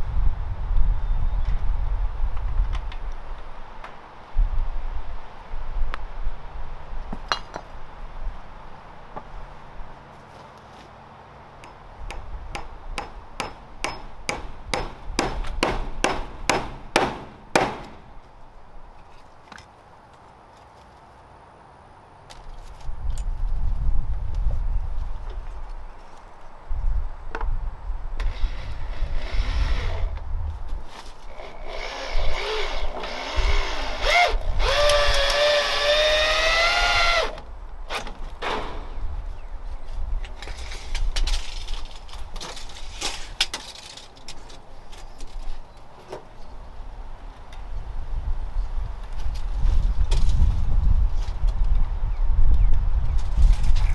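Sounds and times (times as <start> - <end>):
hammer striking: 11.6 - 18.0
sharp knocks: 11.6 - 18.0
cordless drill driving screw: 31.4 - 37.4.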